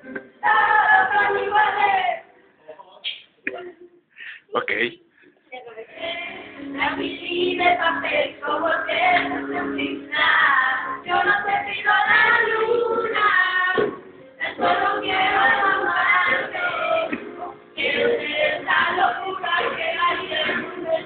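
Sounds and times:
women singing a pop song: 0.4 - 2.3, 5.7 - 21.0
pop music: 6.0 - 21.0.

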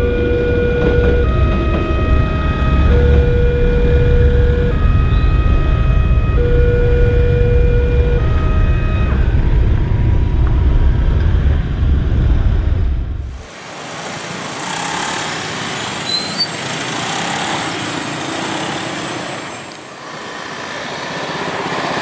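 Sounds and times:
level crossing two-tone alarm: 0.0 - 9.3
passing train rumble: 0.0 - 22.0.

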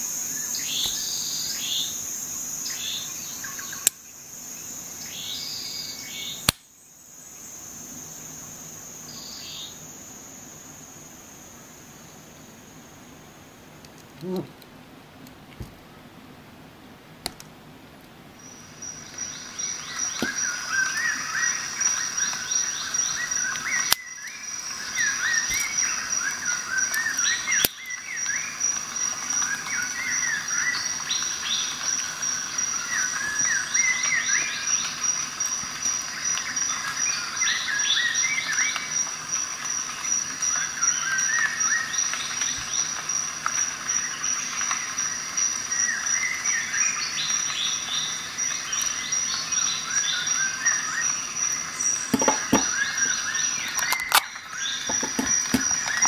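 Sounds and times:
high-pitched insect trill: 0.0 - 14.5, 18.4 - 56.0
birds chirping: 0.3 - 2.0, 45.8 - 56.0
soft knocks: 52.2 - 52.8.

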